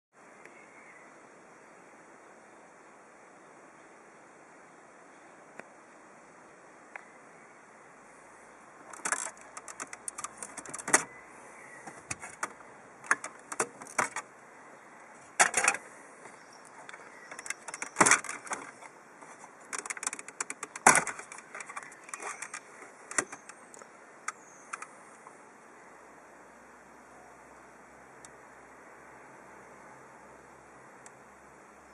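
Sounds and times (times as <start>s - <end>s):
plastic clips snapping: 8.9s - 11.1s, 12.1s - 14.2s, 16.9s - 18.9s, 19.6s - 24.9s
plastic trim clicking and rattling: 8.9s - 11.1s, 11.9s - 14.3s, 15.4s - 15.8s, 16.9s - 18.9s, 19.6s - 24.9s.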